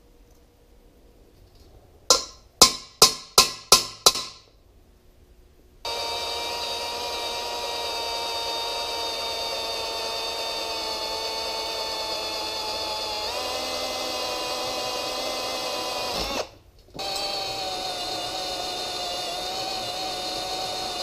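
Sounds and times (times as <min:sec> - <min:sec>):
sharp metal taps: 0:02.1 - 0:04.5
drill press whining: 0:05.9 - 0:21.0.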